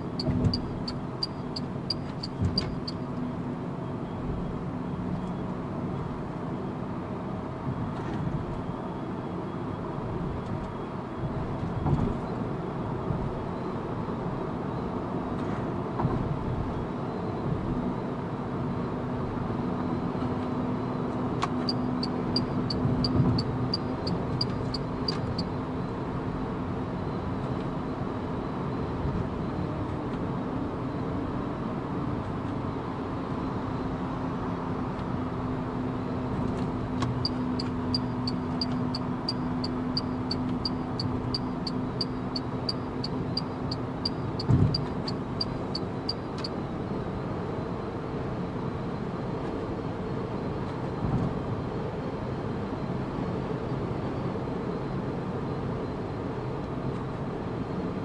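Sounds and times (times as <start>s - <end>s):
turn indicator ticking: 0.2s - 3.0s, 21.6s - 25.4s, 37.0s - 46.5s.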